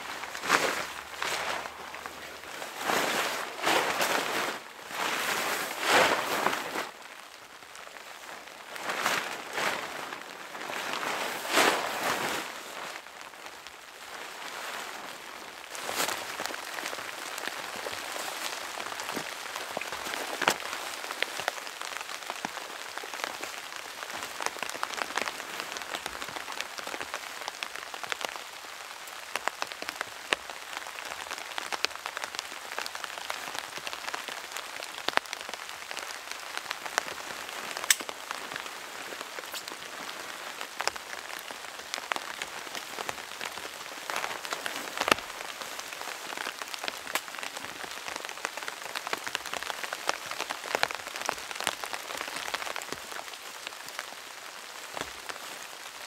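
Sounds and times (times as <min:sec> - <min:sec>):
tent fabric swishing and rustling: 0:00.0 - 0:29.8, 0:30.5 - 0:56.0
rain pattering: 0:00.0 - 0:56.0.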